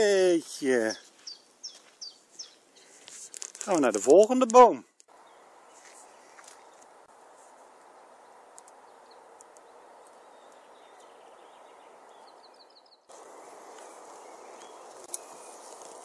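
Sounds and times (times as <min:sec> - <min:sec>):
small bird chirping: 0:00.9 - 0:03.0, 0:07.8 - 0:16.0
steady background hiss: 0:07.0 - 0:16.0
small clicks: 0:08.5 - 0:08.8.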